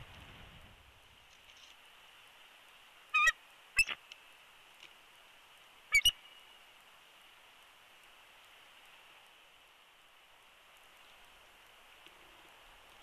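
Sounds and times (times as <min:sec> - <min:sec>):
faint steady hiss: 0:00.0 - 0:13.0
eagle chirping calls: 0:03.1 - 0:04.0, 0:05.9 - 0:06.4.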